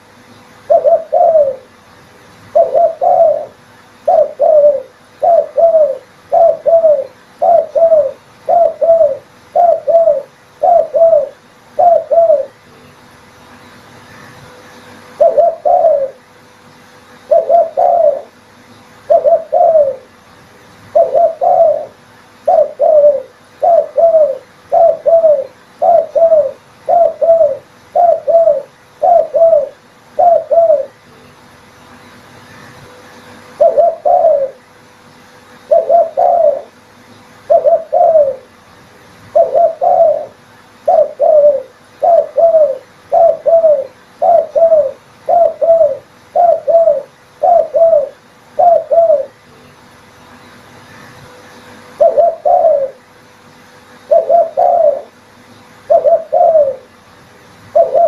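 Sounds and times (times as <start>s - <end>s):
dove cooing: 0.6s - 1.8s, 2.5s - 12.7s, 14.9s - 16.3s, 17.3s - 18.4s, 19.0s - 20.2s, 20.9s - 31.0s, 33.4s - 34.7s, 35.6s - 36.8s, 37.4s - 38.6s, 39.3s - 49.5s, 51.9s - 53.1s, 54.0s - 55.2s, 55.8s - 57.0s, 57.7s - 58.0s.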